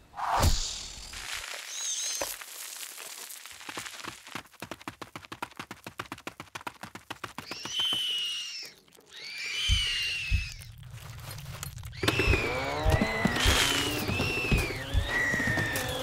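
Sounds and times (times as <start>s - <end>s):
shrill creature screeches: 7.5s - 10.8s.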